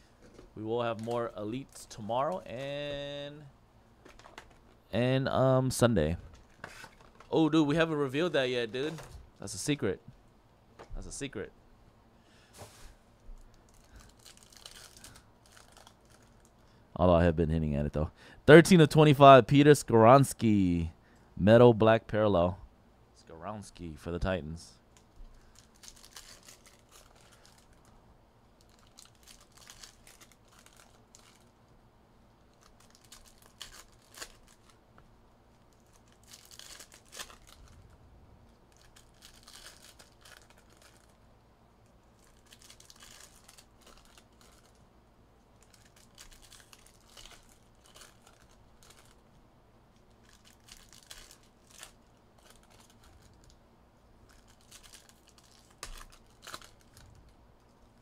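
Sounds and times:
plastic wrapping crinkling and tearing: 0.7s - 2.8s, 13.5s - 16.6s, 24.9s - 28.0s, 28.6s - 31.6s, 32.5s - 34.8s, 35.5s - 37.9s, 38.5s - 41.2s, 41.8s - 44.8s, 45.5s - 49.2s, 49.9s - 53.6s, 54.2s - 58.0s.

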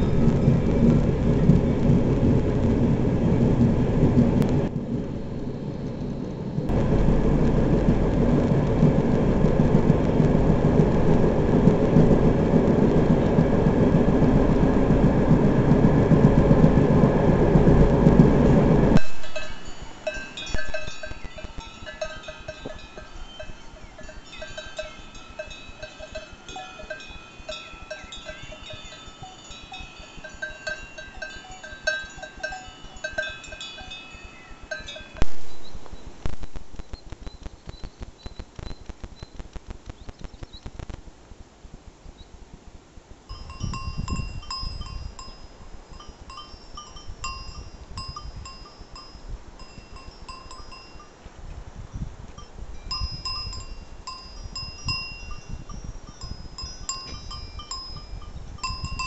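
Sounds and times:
low rumble: 0.0s - 27.2s, 35.0s - 37.5s
goat bells clinking: 19.0s - 35.2s, 43.3s - 51.3s, 52.3s - 59.0s
cowbells clanking: 19.0s - 35.3s, 43.3s - 51.3s, 52.4s - 59.0s.

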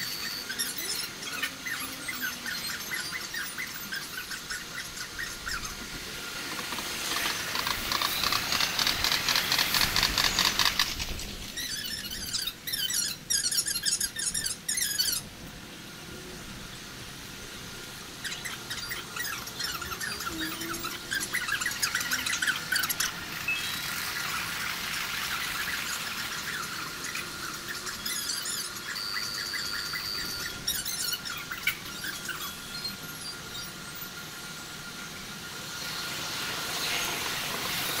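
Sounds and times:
sped-up squeaky chattering: 0.0s - 5.9s, 6.6s - 15.2s, 18.2s - 34.2s
sharp high chirps: 18.3s - 24.6s, 25.3s - 33.8s.

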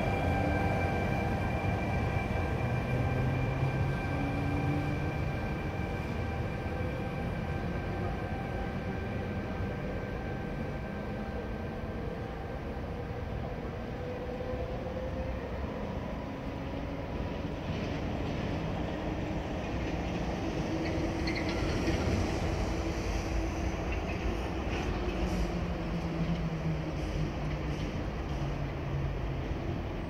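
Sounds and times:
electric train rumbling: 0.0s - 30.0s.

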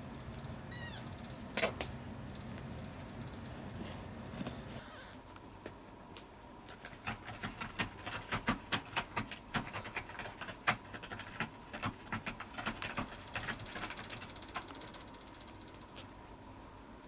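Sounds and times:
cat paws clicking and scratching: 6.6s - 16.0s.

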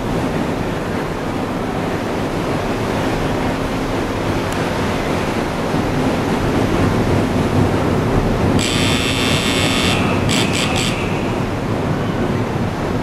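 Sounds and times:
propeller wash churning water: 0.0s - 13.0s
ship engines rumbling: 0.0s - 13.0s
wind on microphone: 0.0s - 13.0s
high buzzing hiss: 8.6s - 11.7s.

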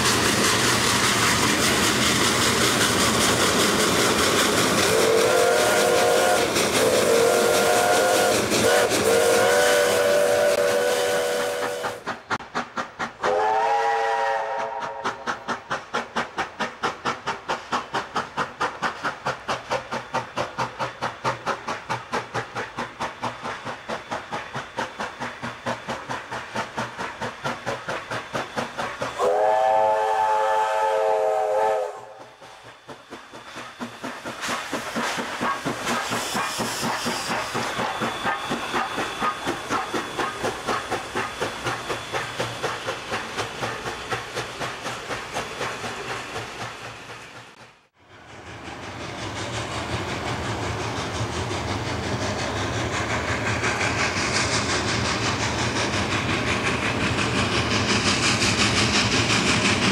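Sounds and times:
steam hissing: 0.0s - 59.9s
steam locomotive chuffing: 0.0s - 59.9s
train whistle blast: 4.8s - 12.0s, 13.2s - 15.3s, 29.0s - 32.6s.

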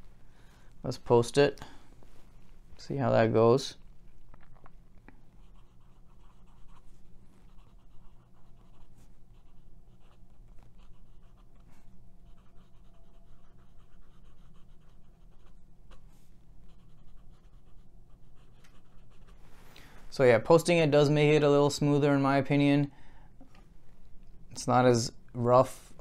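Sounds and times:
fountain pen scratching paper: 5.4s - 11.7s, 12.3s - 15.6s, 16.7s - 19.4s.

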